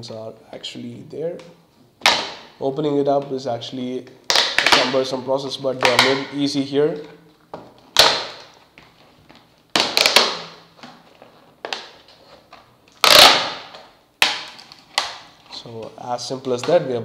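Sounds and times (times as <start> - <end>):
plastic packaging cracking: 4.2 - 5.2, 5.8 - 6.3, 7.8 - 15.5.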